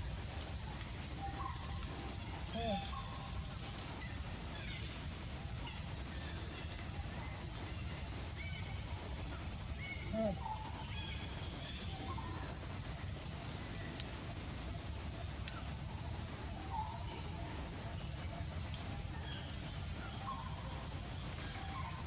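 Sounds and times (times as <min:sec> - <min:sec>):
animal calls: 0:01.2 - 0:03.5, 0:09.8 - 0:11.0.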